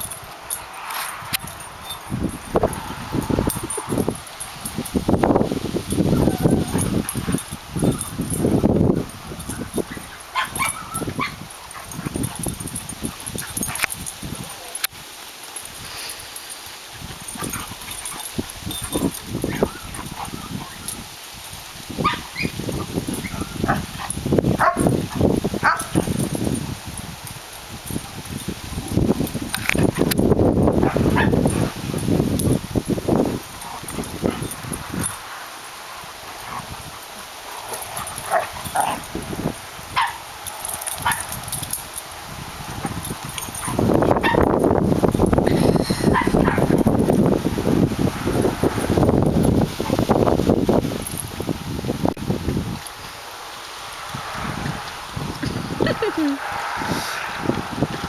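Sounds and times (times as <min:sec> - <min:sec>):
dogs scuffling: 0:00.0 - 0:51.4
dogs barking and yipping: 0:05.8 - 0:47.2, 0:55.8 - 0:56.8.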